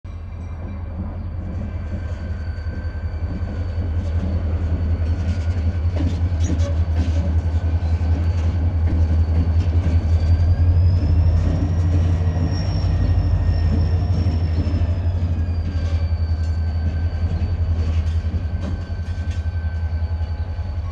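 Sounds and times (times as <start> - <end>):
diesel locomotive engine drone: 0.1 - 20.9.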